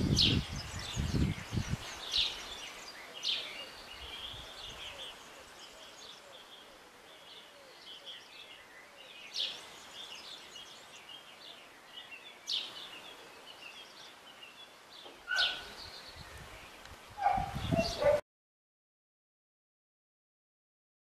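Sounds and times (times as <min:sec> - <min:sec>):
small birds chirping: 0:00.0 - 0:18.2
loud falling bird calls: 0:15.0 - 0:15.9.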